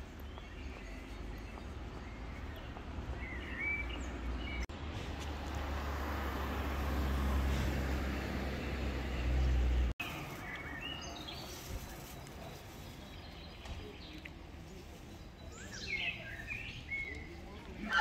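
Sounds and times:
small birds chirping: 0.0s - 4.7s, 8.5s - 18.0s
outdoor background noise: 0.0s - 18.0s.

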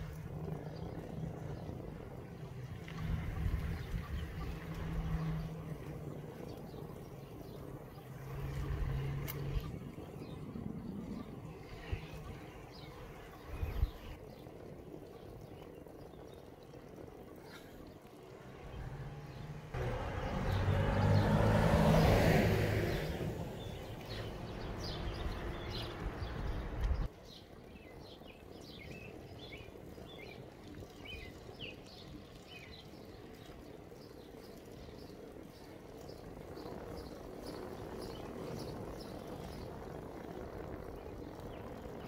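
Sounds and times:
wind rushing over microphone: 0.0s - 14.2s, 18.4s - 27.1s, 35.8s - 42.0s
birds chirping: 0.0s - 42.0s.

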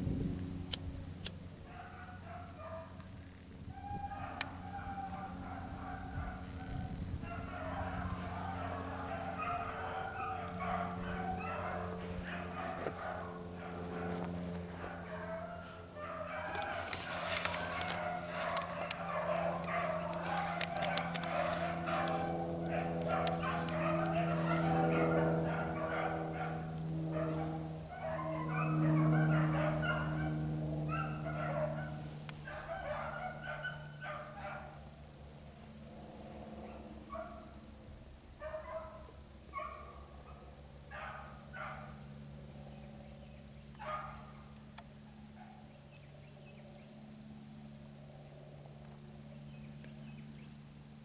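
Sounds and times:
steady low hum: 0.0s - 51.0s
dogs baying: 1.6s - 3.1s, 3.7s - 34.9s, 36.6s - 37.6s, 38.4s - 42.0s, 43.8s - 44.6s.

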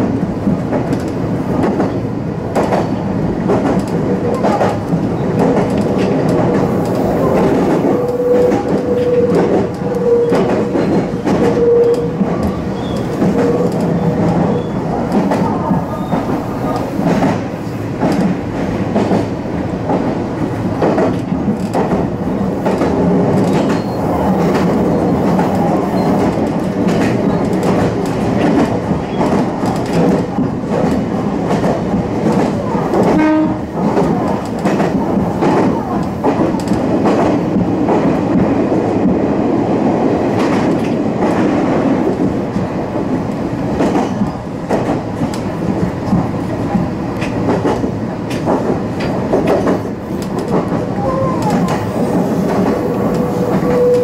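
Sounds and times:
electric train rumbling: 0.0s - 54.0s.

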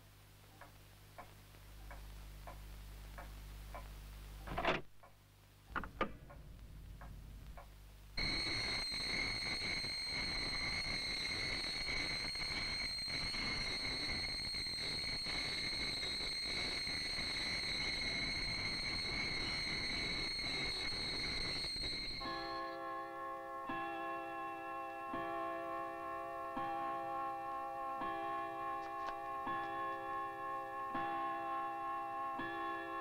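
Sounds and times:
shrill hissing gas whistle: 8.2s - 23.2s.

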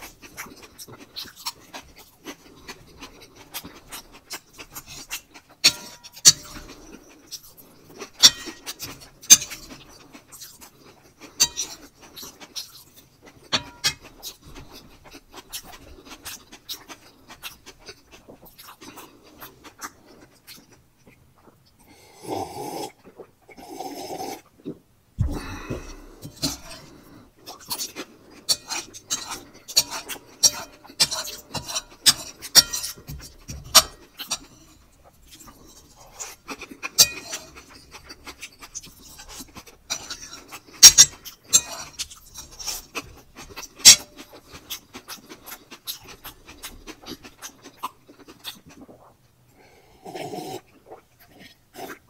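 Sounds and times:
wet chewing and lip smacks: 0.0s - 21.8s, 25.8s - 49.4s
metal spoon scraping ceramic plate: 8.2s - 9.7s, 11.4s - 11.8s, 28.5s - 34.8s
person swallowing wine: 24.0s - 26.2s.

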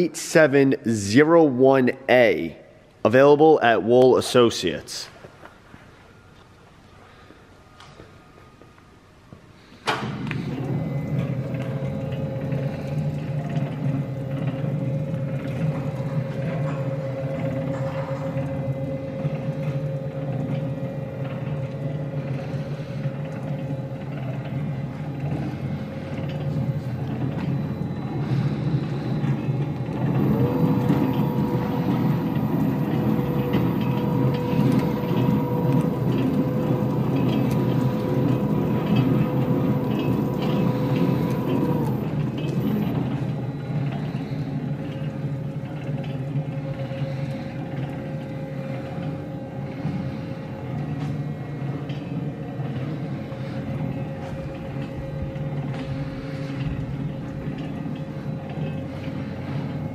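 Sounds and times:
bowl mixer motor humming: 27.0s - 43.9s.

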